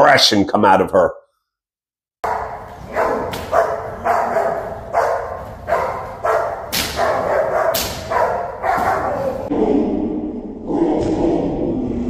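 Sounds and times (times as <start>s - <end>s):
dog barking aggressively: 2.2s - 9.5s.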